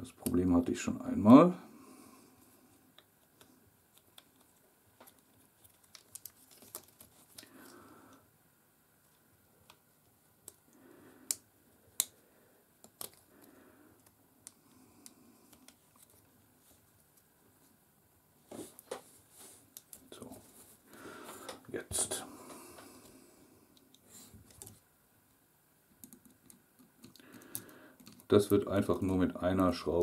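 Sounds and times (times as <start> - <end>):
small plastic parts clicking: 3.0 - 7.8, 11.3 - 12.2, 12.8 - 16.3, 25.9 - 28.6
soft rustles: 18.4 - 21.6.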